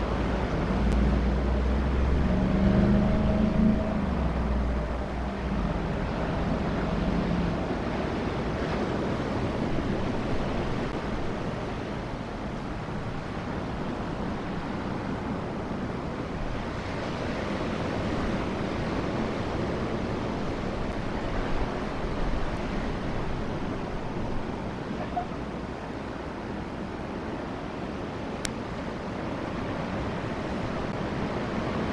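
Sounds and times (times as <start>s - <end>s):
train humming: 0.0s - 16.8s
wind on microphone: 0.0s - 31.9s.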